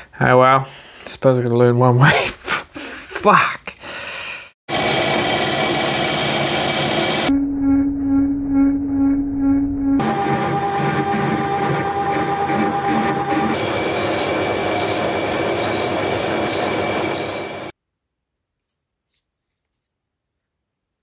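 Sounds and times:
metal lathe cutting metal: 4.7s - 7.3s, 10.0s - 17.7s.

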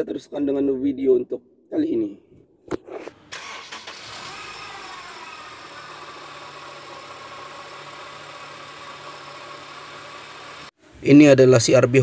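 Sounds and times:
car engine idling: 3.8s - 10.6s.

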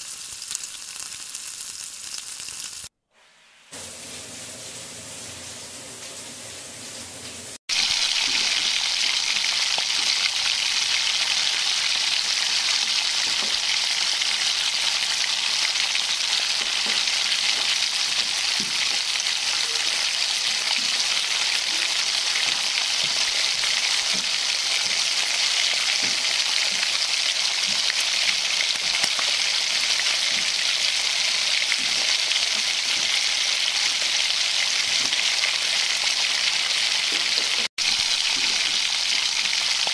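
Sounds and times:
hot oil sizzling: 0.0s - 39.9s.

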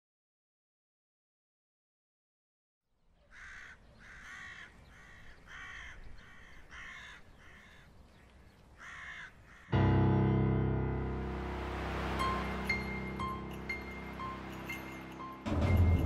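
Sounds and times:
crow cawing: 3.3s - 8.0s, 8.7s - 9.9s.

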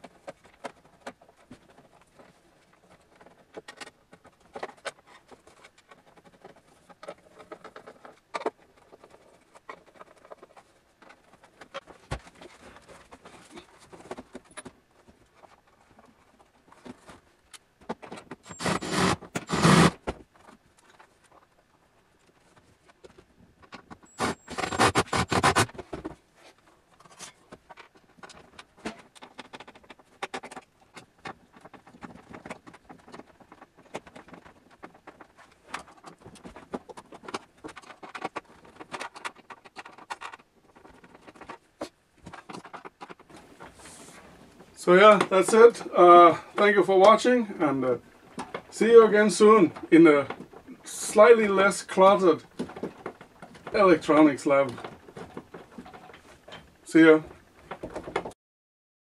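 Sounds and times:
clicks and scrapes of handling: 0.0s - 58.4s
cordless drill driving screws: 18.5s - 20.0s, 24.2s - 25.6s.

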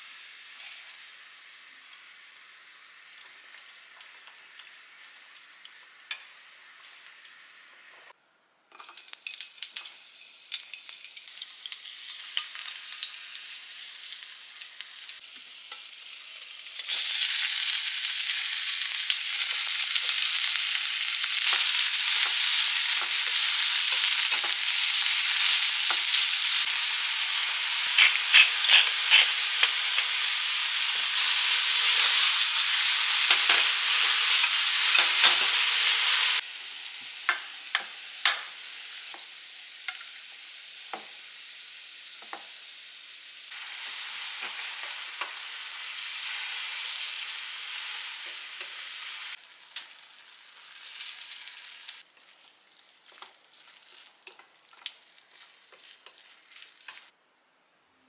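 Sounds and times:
onion and meat sizzling in oil: 0.0s - 8.2s, 8.8s - 57.2s
chopsticks tapping on pan: 37.3s - 38.4s.

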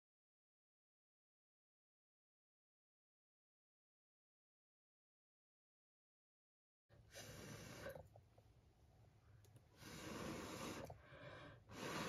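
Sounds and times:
person breathing softly: 6.9s - 8.2s, 9.2s - 12.0s.

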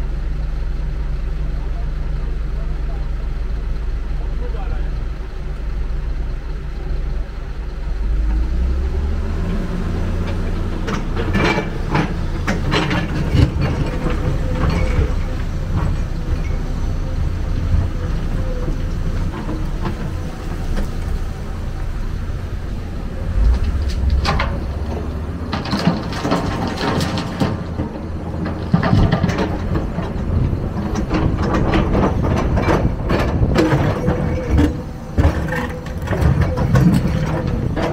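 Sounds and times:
excavator engine droning: 0.0s - 37.9s
clattering: 22.2s - 37.9s.

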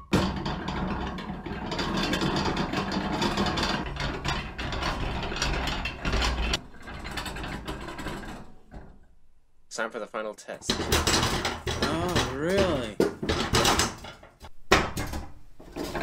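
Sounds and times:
hand-cranked gears clattering: 0.2s - 9.1s, 10.7s - 14.4s.

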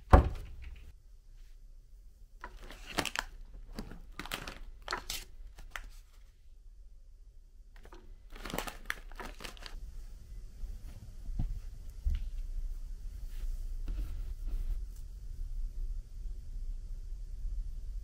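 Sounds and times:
rustling and crinkling handling noise: 2.4s - 6.4s, 7.8s - 9.8s.

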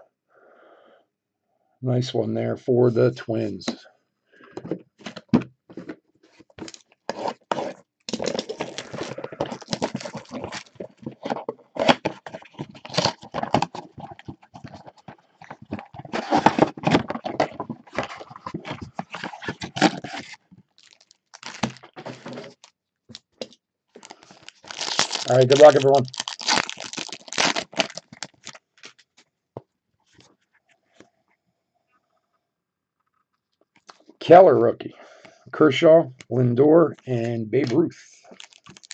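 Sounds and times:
foil packs rustling: 6.6s - 22.7s, 24.0s - 29.1s, 38.2s - 38.9s.

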